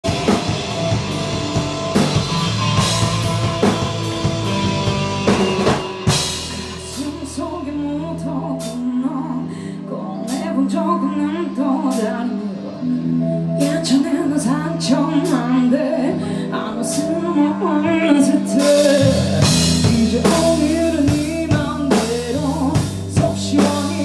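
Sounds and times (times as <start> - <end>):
rock band playing: 0.0 - 24.0
person singing: 6.1 - 24.0.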